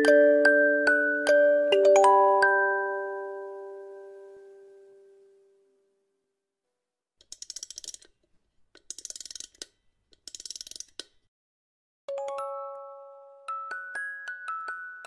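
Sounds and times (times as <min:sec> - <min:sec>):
rapid ratchet-like clicking: 0:07.2 - 0:08.1, 0:08.8 - 0:11.2.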